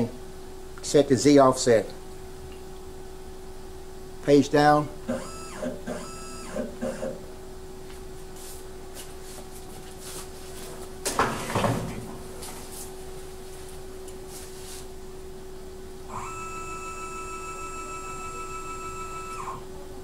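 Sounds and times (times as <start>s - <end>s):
stepper motor whine: 5.0s - 7.2s, 16.1s - 19.7s
milling machine hum: 16.0s - 20.0s.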